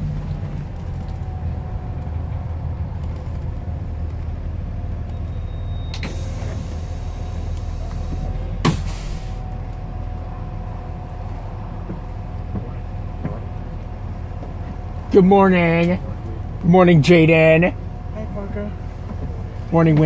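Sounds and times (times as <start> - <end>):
bus engine idling: 0.0 - 20.0
air brake hiss: 5.9 - 9.5.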